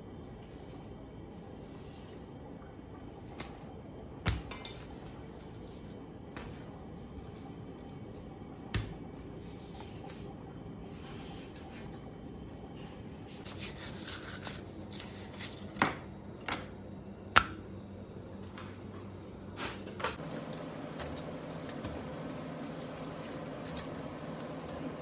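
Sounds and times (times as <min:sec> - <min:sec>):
knife scraping fish skin: 0:13.4 - 0:15.8.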